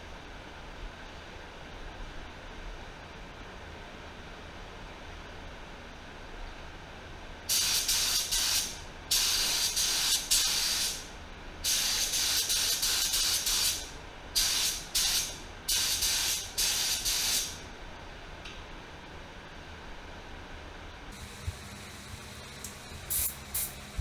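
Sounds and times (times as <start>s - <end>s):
spray gun hissing bursts: 7.5s - 17.6s, 23.0s - 24.0s.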